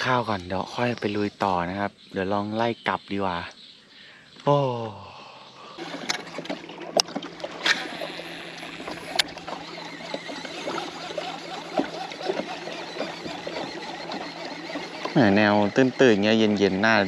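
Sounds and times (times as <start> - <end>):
water splashing and trickling: 5.8 - 17.0.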